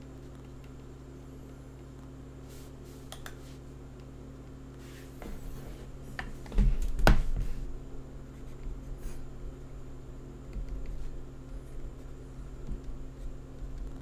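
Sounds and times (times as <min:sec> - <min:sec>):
low electrical hum: 0:00.0 - 0:14.0
stylus tapping and scratching: 0:10.5 - 0:14.0.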